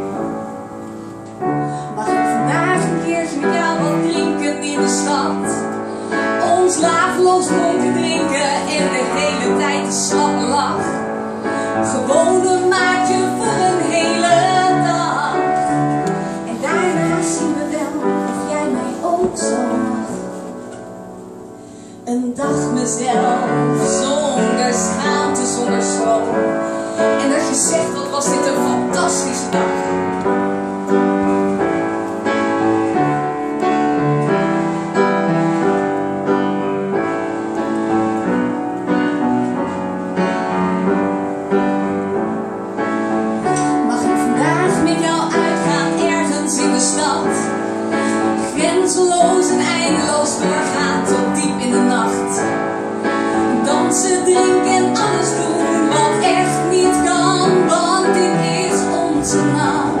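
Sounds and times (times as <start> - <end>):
solo piano playing chords: 0.0 - 60.0
woman singing: 1.9 - 5.7, 6.3 - 11.0, 11.7 - 20.4, 22.0 - 29.9, 43.6 - 47.6, 48.4 - 52.5, 53.5 - 60.0.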